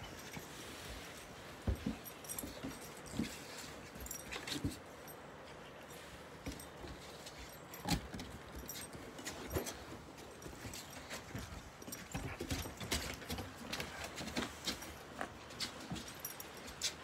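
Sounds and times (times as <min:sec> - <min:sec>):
collar tags jingling: 0:00.0 - 0:17.0.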